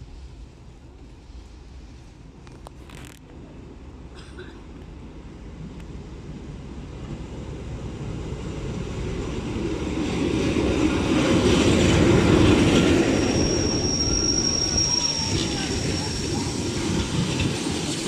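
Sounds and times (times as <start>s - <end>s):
diesel locomotive engine: 0.0s - 18.0s
train wheels on rails: 4.3s - 18.0s.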